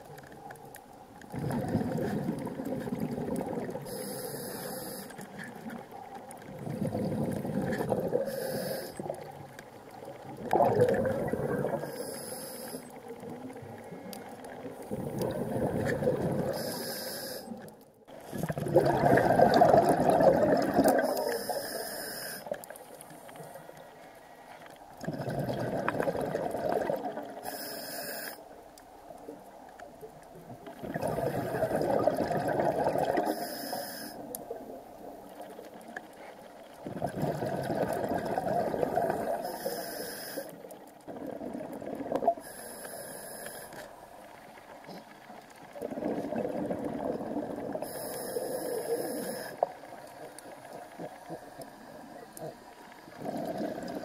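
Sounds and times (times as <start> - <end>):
exhaled bubbles underwater: 0.0 - 12.1, 12.9 - 21.7, 25.0 - 27.6, 29.2 - 42.6, 45.5 - 54.0
regulator inhale hiss: 3.8 - 5.4, 8.2 - 9.2, 11.8 - 13.0, 16.5 - 17.7, 21.0 - 24.7, 27.4 - 28.4, 33.2 - 34.3, 39.2 - 40.6, 42.4 - 43.9, 47.8 - 49.7.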